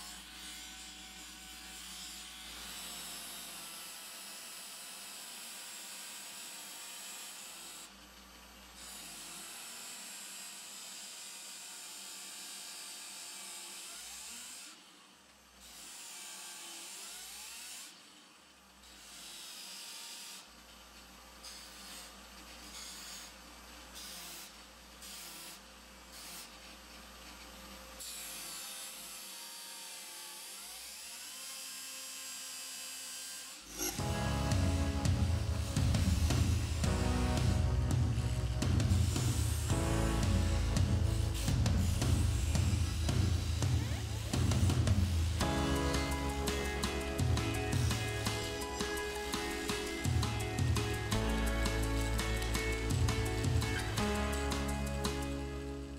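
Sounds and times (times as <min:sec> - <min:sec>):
wood sanding rasp: 0:33.1 - 0:55.4
grinder motor hum: 0:33.4 - 0:55.9.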